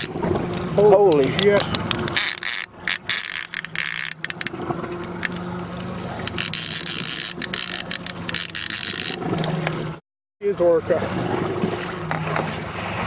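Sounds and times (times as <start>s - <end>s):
sharp clicks and knocks: 0.0s - 9.8s
boat motor humming: 0.0s - 13.0s
wind and water hiss: 0.0s - 13.0s.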